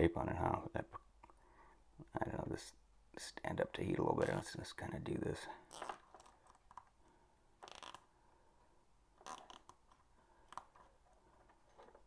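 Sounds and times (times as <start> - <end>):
cable tie rasping and clicking: 9.2 - 12.0.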